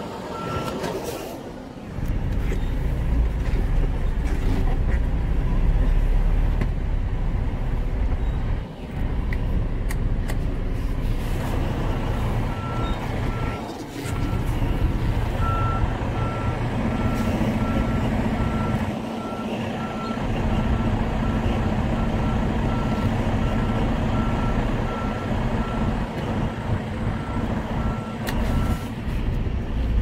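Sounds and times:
diesel engine rumble: 0.0 - 30.0
back-up alarm beeping: 27.2 - 28.8.

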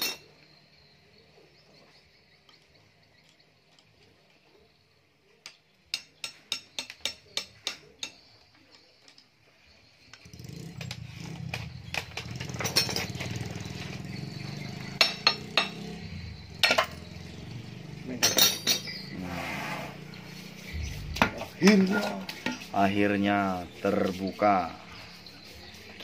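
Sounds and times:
hand tools tapping on metal: 5.4 - 9.3, 10.1 - 13.7, 15.0 - 15.9, 16.6 - 17.0, 20.8 - 22.8
low rumble: 20.7 - 21.9.

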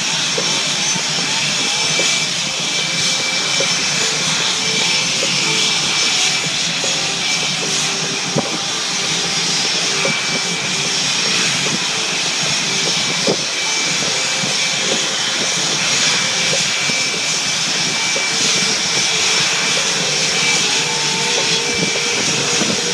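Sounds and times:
jet engine rush: 0.0 - 22.9.

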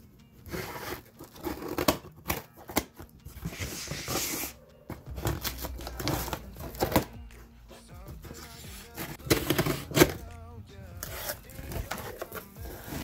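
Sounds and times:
tape tearing: 0.5 - 4.6, 8.3 - 10.2, 11.0 - 13.0.

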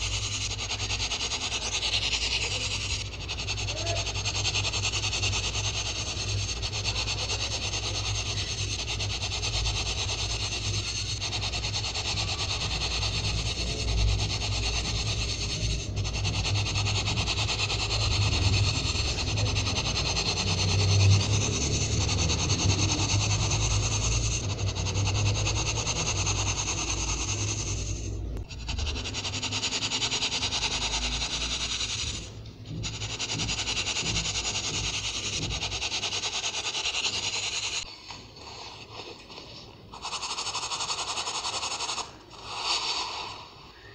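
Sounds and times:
fingers rubbing powder on sieve: 0.0 - 43.9.

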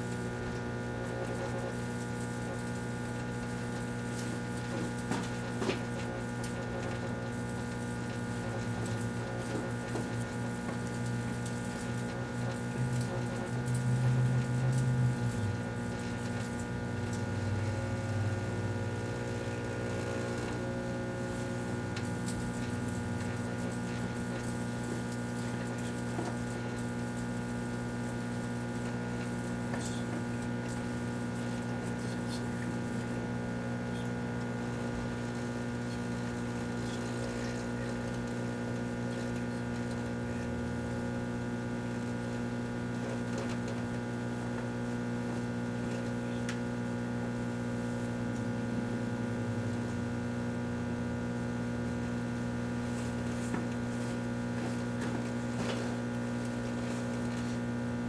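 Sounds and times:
microwave oven humming: 0.0 - 58.0.

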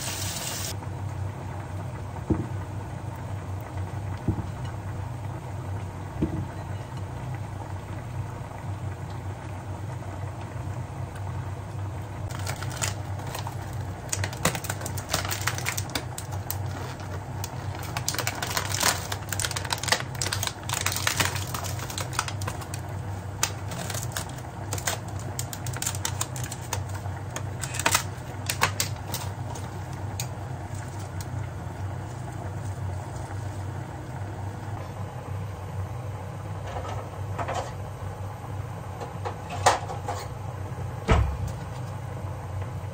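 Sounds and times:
plastic packaging crinkling: 12.3 - 33.7.

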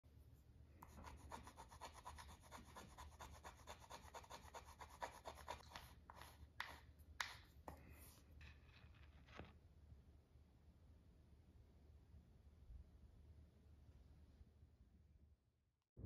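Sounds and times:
scratching on paper poster: 0.8 - 9.5.

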